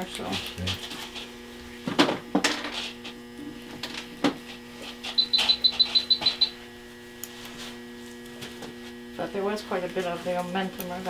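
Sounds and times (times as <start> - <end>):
equipment electrical hum: 0.0 - 11.0
short high electronic beeps: 5.2 - 6.6.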